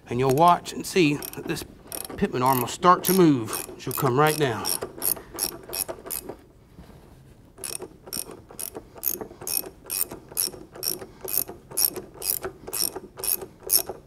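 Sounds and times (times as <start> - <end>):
hand ratchet clicking: 0.2 - 6.3, 7.6 - 14.0.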